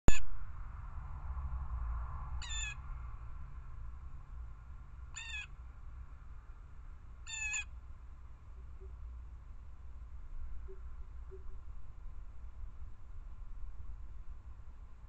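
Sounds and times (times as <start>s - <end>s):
steady low rumble: 0.1s - 15.0s
blue jay calls: 2.4s - 2.8s, 5.2s - 5.6s, 7.2s - 7.8s.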